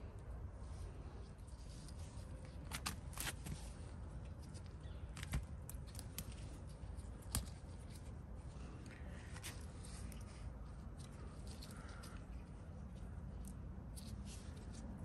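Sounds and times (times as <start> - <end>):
leaves and stems rustling: 0.6 - 15.0
stems snapping: 2.4 - 3.6, 4.2 - 8.2.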